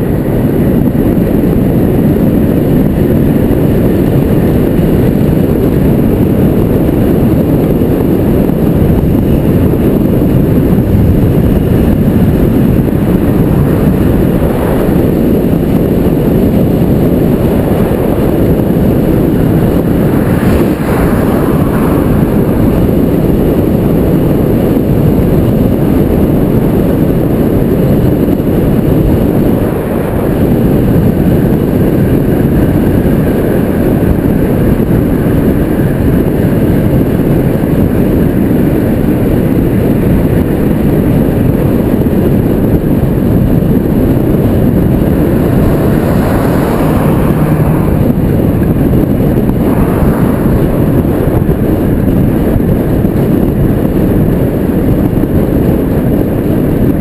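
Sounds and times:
loud wind rush: 0:00.0 - 0:57.0
road rumble: 0:00.0 - 0:57.0
car passing close by: 0:19.6 - 0:23.3, 0:45.1 - 0:51.6.

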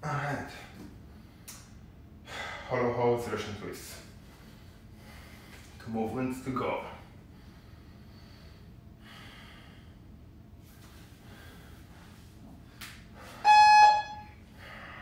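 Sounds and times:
faint breathing: 0:04.2 - 0:05.8, 0:07.0 - 0:10.1, 0:11.2 - 0:12.3, 0:14.5 - 0:15.0
electronic timer beep: 0:13.4 - 0:14.2.

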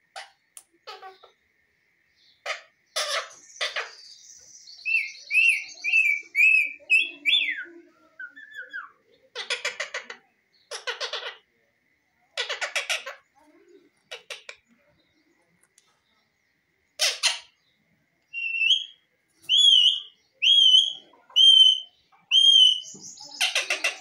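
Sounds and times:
parakeet raspy calls: 0:00.2 - 0:01.4, 0:02.4 - 0:04.2, 0:08.2 - 0:11.5, 0:12.4 - 0:13.4, 0:14.0 - 0:14.7, 0:17.0 - 0:17.6, 0:18.4 - 0:24.0.

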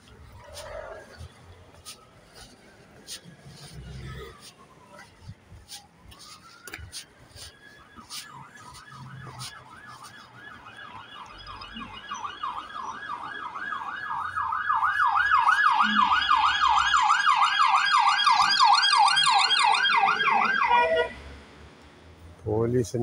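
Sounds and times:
police siren yelping: 0:00.2 - 0:21.2.

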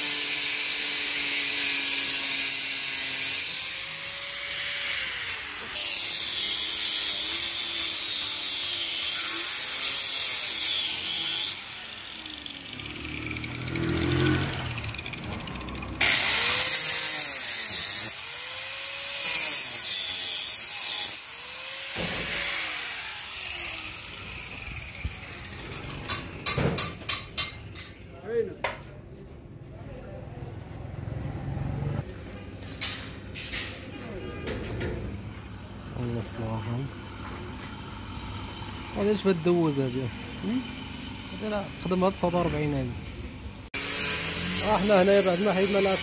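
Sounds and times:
grinder motor spinning up and down: 0:00.0 - 0:25.8
angle grinder cutting steel: 0:00.0 - 0:28.0, 0:35.9 - 0:46.0.

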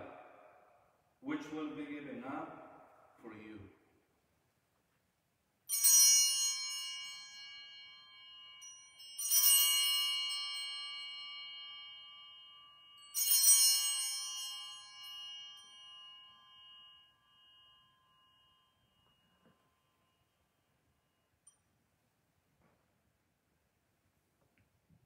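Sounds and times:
altar bells ringing: 0:05.7 - 0:21.7.

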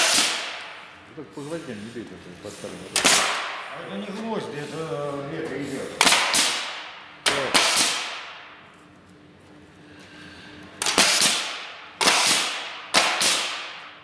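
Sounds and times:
nail gun shots into wood: 0:00.0 - 0:00.8, 0:03.0 - 0:03.6, 0:06.0 - 0:08.4, 0:10.8 - 0:14.0.

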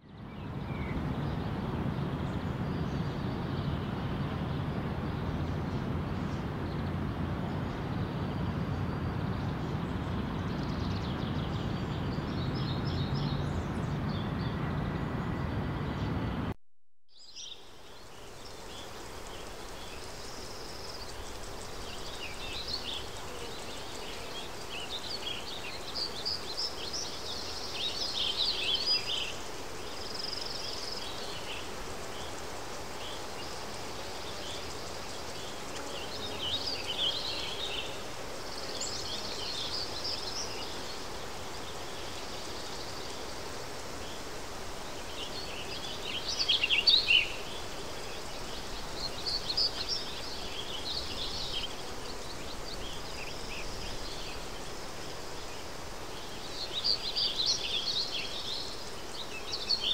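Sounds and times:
road traffic rumble: 0:01.0 - 0:16.5
birds chirping: 0:17.2 - 0:59.9.

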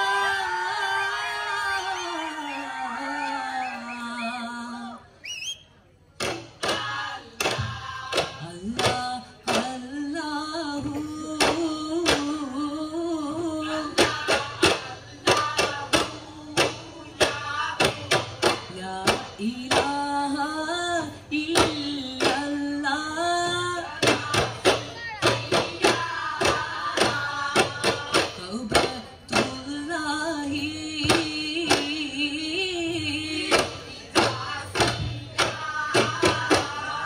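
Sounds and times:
frame drums beating: 0:23.4 - 0:37.0.

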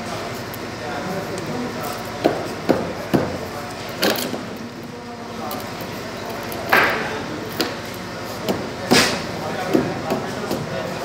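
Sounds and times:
faint murmur of voices: 0:00.0 - 0:11.0.

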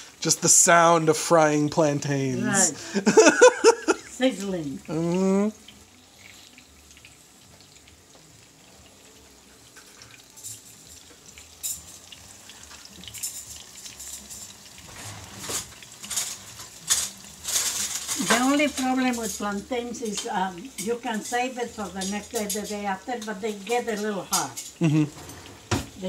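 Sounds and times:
food sizzling in hot oil: 0:00.0 - 0:26.0
oil crackling and spattering: 0:09.7 - 0:26.0.

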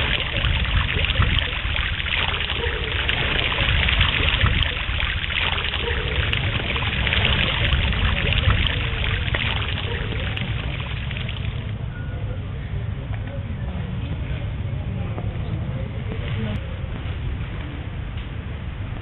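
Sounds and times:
running water rushing: 0:00.0 - 0:11.8
low rumble: 0:00.0 - 0:11.9.

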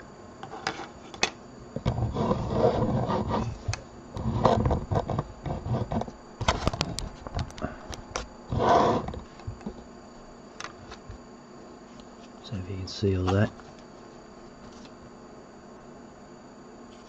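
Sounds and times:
rubbing on cutting mat: 0:01.9 - 0:03.6.

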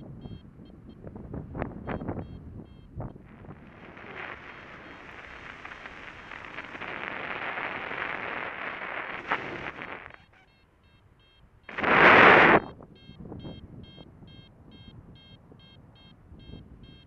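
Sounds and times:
wind rushing over microphone: 0:01.1 - 0:10.0, 0:11.7 - 0:12.7.

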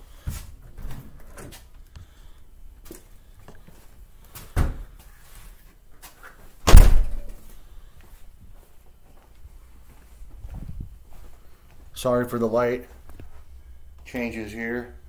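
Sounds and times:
door banging shut: 0:06.7 - 0:07.3.

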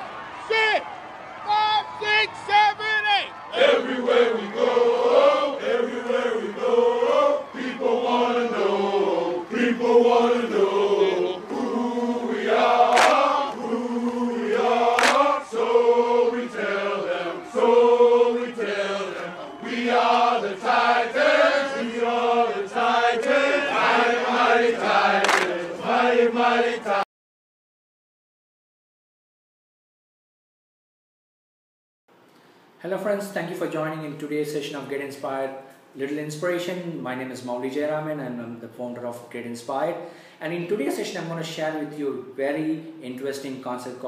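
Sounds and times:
men chanting in unison: 0:03.5 - 0:27.0
sharp cracks: 0:12.9 - 0:13.3, 0:14.9 - 0:15.3.

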